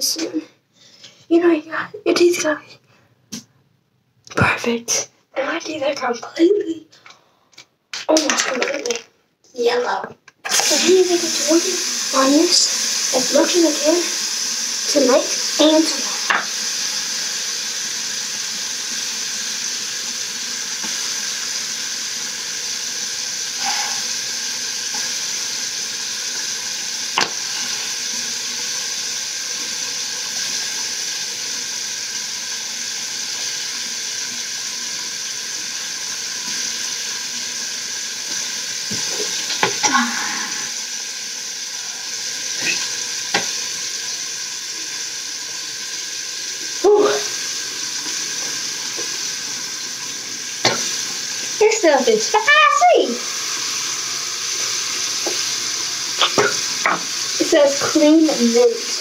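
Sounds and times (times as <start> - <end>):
toothbrush scrubbing teeth: 10.5 - 17.2, 23.5 - 26.6, 27.2 - 28.0.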